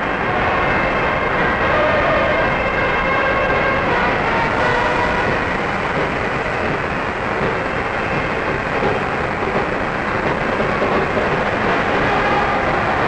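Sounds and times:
crowd cheering: 0.0 - 6.7, 10.7 - 13.0.

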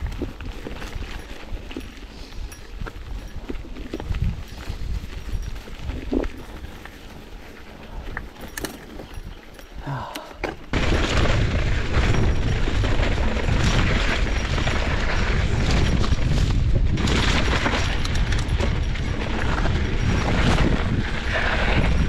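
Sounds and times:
bike tyre and rattle noise: 0.0 - 22.0
wind buffeting microphone: 0.0 - 22.0.

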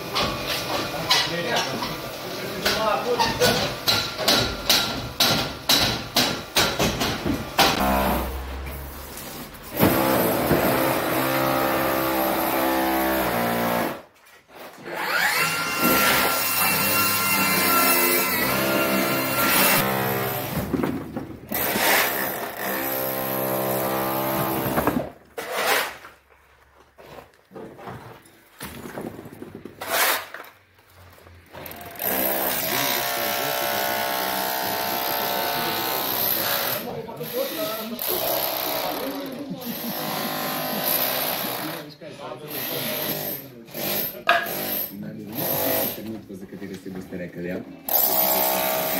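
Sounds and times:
building work knocks and clatter: 0.0 - 8.0, 9.7 - 11.7, 19.4 - 22.7, 23.3 - 31.8
power tool motor whining: 14.8 - 20.2.

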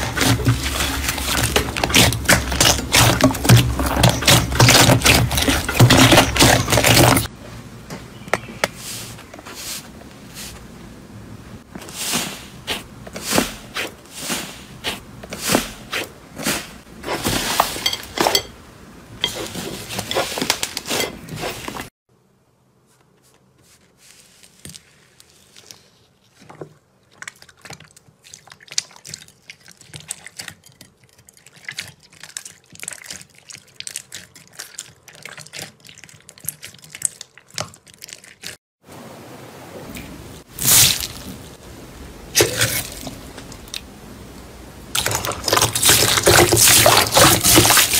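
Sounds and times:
slime squishing: 0.0 - 7.3, 23.6 - 38.6.

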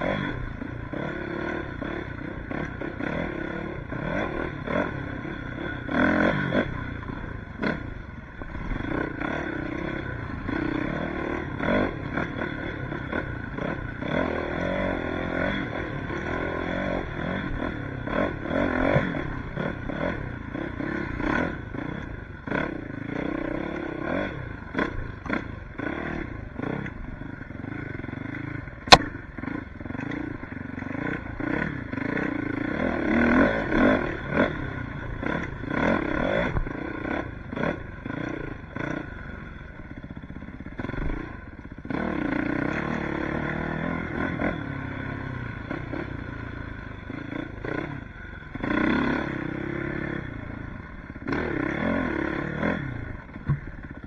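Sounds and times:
dirt bike engine revving: 0.0 - 54.0
sharp click: 28.8 - 29.2.

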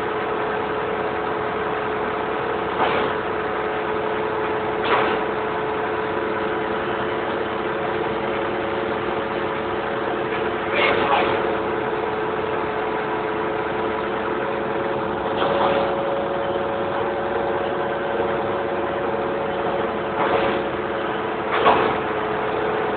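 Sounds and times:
vehicle engine idling: 0.0 - 22.9.

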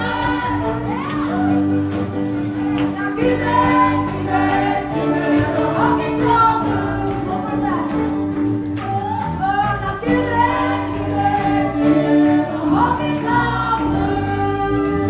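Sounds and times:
people singing together: 0.0 - 1.6, 2.8 - 7.5, 9.9 - 15.0
acoustic guitar: 0.0 - 15.0
electric bass: 0.0 - 15.0.

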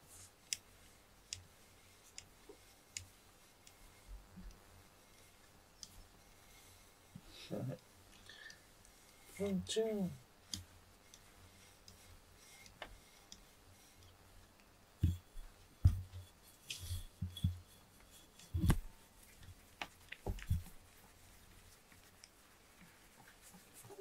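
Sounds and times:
fur brushing on microphone: 16.0 - 24.0.

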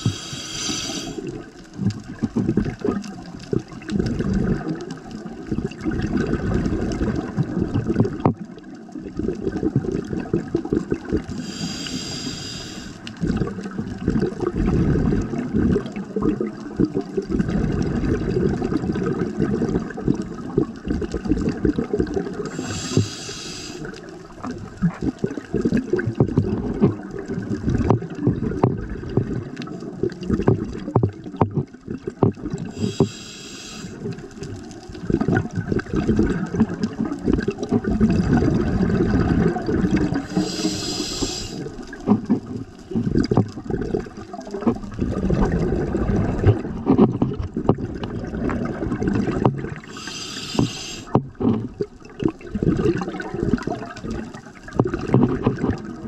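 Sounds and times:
regulator inhalation hiss: 0.0 - 1.2, 11.4 - 13.1, 22.5 - 23.9, 32.7 - 34.0, 40.2 - 41.7, 49.9 - 51.2
exhaled air bubbling: 0.0 - 56.0.

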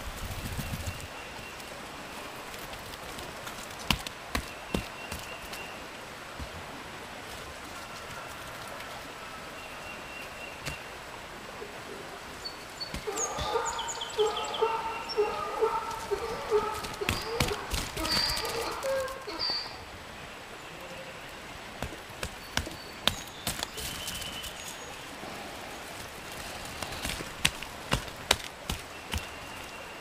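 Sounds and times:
farm fowl pulsing calls: 12.9 - 19.9.

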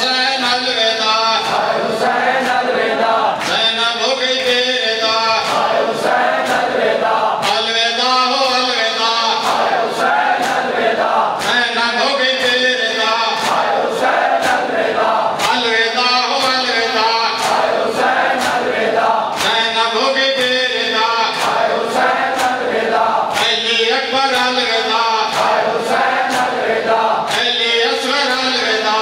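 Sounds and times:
men chanting a lament: 0.0 - 29.0
palms slapping chests: 21.4 - 23.6.

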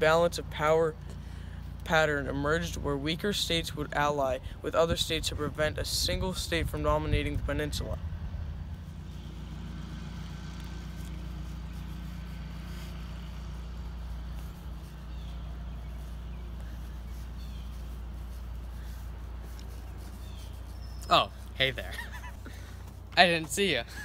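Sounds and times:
low engine hum: 0.0 - 24.0
faint bird chirps: 15.0 - 18.9, 20.1 - 21.5.

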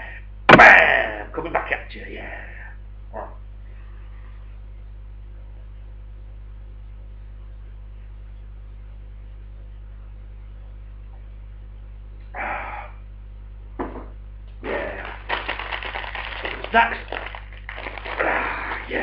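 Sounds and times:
electrical mains hum: 0.0 - 19.0
breathy burst: 18.1 - 18.9.

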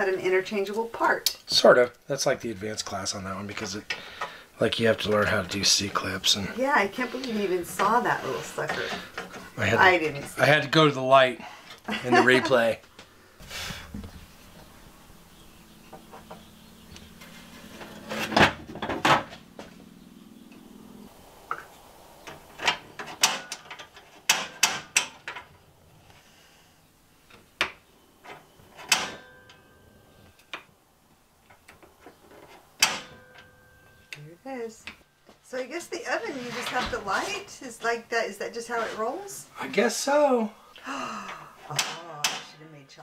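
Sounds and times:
clicks and knocks of stove parts: 22.3 - 25.6, 27.6 - 29.6, 31.5 - 33.5, 41.7 - 42.6.

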